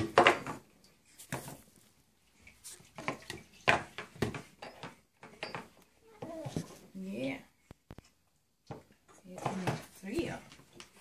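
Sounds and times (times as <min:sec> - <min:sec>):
plastic items knocking at sink: 0:00.0 - 0:00.7, 0:03.0 - 0:05.7.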